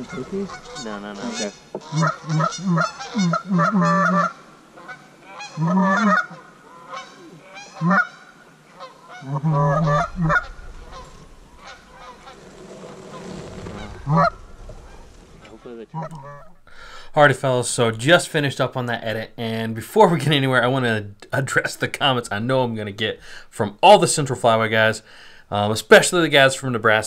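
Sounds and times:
geese honking: 0.0s - 16.7s.

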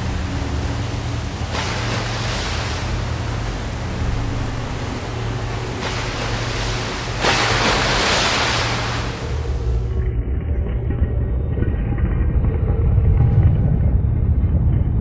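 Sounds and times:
waves crashing on rocks: 0.0s - 9.9s
surf washing: 0.0s - 10.0s.

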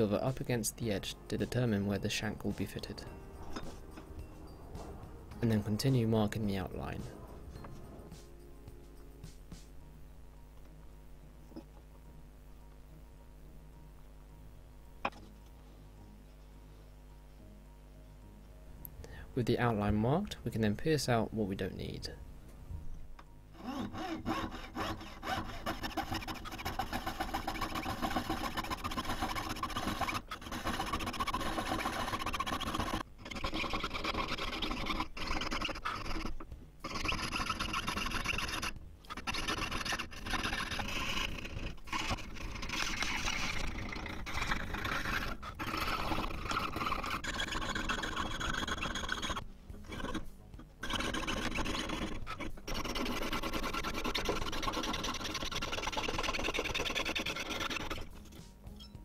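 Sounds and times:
piercing saw rasping through metal: 23.6s - 50.2s, 50.8s - 58.5s.

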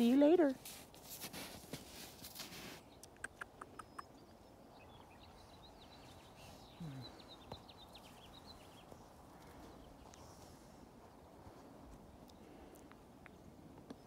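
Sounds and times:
small bird chirping: 2.8s - 9.0s.

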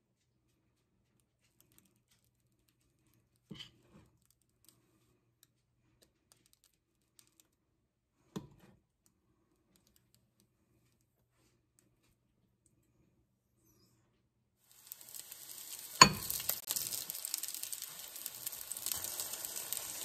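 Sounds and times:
spoon knocking on cookware: 16.0s - 16.4s.

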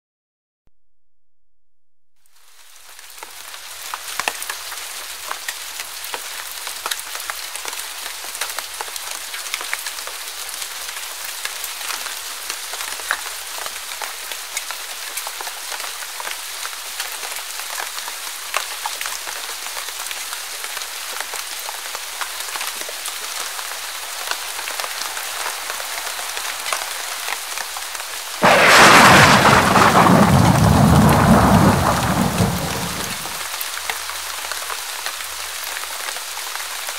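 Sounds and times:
heavy rain on a hard surface: 2.3s - 36.9s
thunderclap rumbling: 28.4s - 33.4s.

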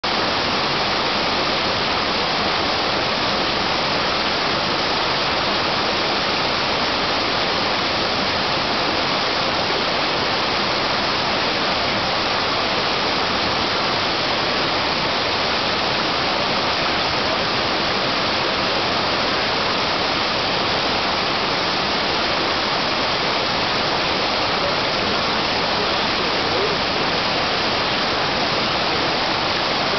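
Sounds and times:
creek rushing over boulders: 0.0s - 29.9s.

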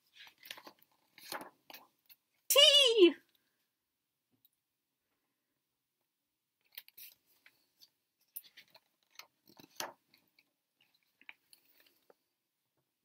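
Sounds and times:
paper pages rustling: 0.0s - 2.0s, 6.7s - 12.2s.

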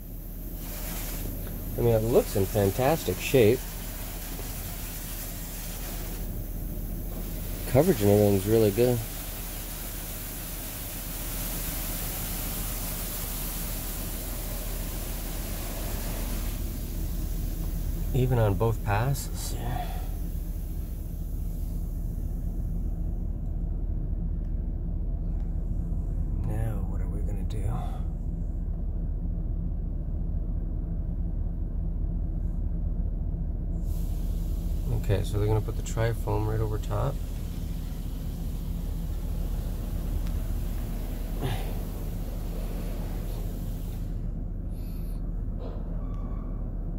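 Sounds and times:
water spray hissing on van: 0.0s - 23.2s, 33.8s - 45.1s
steady low hum: 0.0s - 46.9s.

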